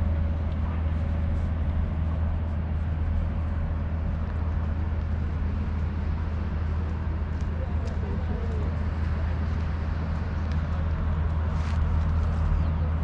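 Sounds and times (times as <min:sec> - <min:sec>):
distant traffic rumble: 0:00.0 - 0:13.0.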